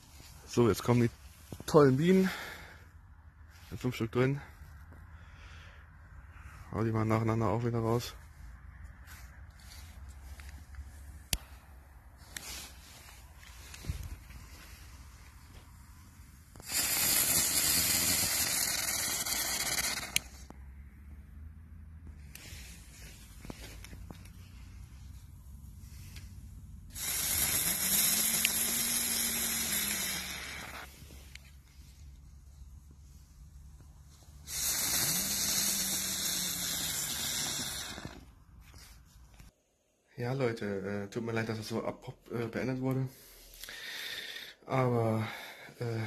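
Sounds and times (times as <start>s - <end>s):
firework spinner hissing: 12.2s - 20.6s, 25.6s - 32.0s, 34.1s - 38.9s.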